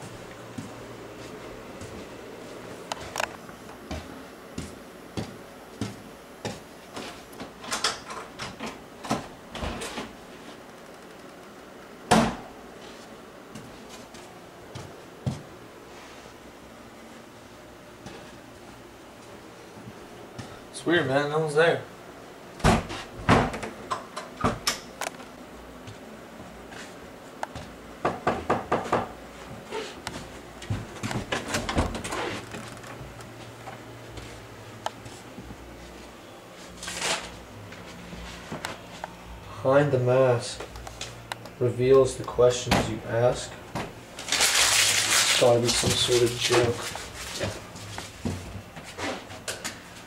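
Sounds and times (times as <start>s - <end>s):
footsteps in a hallway: 0.0s - 7.6s, 12.8s - 16.4s, 25.7s - 27.8s, 29.3s - 39.2s, 45.7s - 50.0s.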